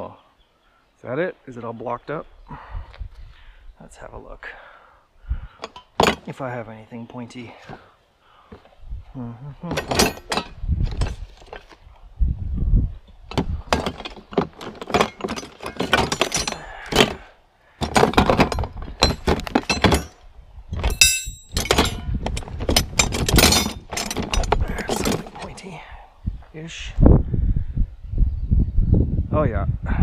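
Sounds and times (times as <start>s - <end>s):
metal hand tools clattering: 5.6s - 6.4s, 9.6s - 11.8s, 13.3s - 20.2s, 20.8s - 25.7s.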